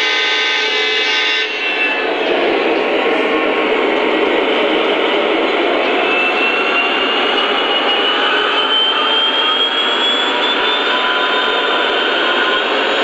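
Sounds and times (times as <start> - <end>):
model train running on track: 0.0 - 13.0.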